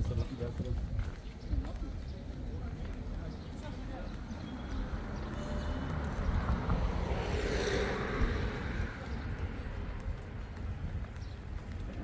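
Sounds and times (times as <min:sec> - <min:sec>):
wind rumble on microphone: 0:00.0 - 0:02.9, 0:05.8 - 0:12.0
vehicle passing: 0:04.2 - 0:11.8.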